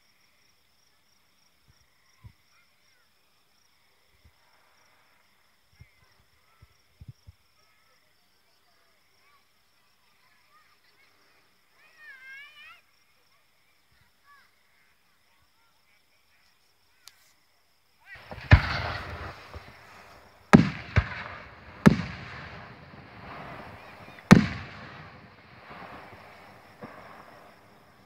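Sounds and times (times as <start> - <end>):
firework shells booming: 18.2 - 28.0.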